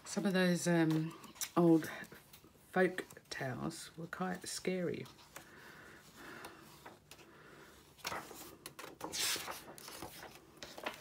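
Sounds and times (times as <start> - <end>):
book pages turning: 7.9 - 11.0.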